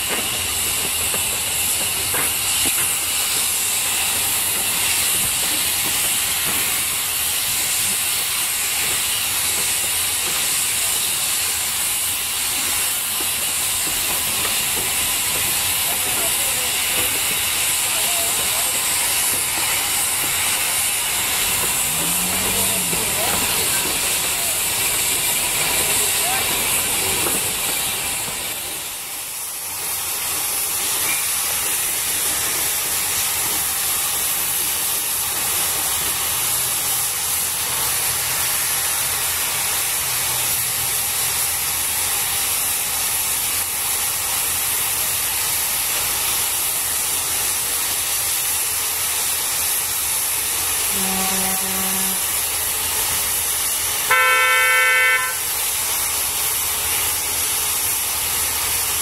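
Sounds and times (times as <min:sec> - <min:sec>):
steam hissing: 0:00.0 - 0:59.0
short low locomotive toots: 0:21.7 - 0:23.5, 0:50.9 - 0:52.3, 0:54.1 - 0:55.5
locomotive whistle blast: 0:50.9 - 0:52.2, 0:54.1 - 0:55.5.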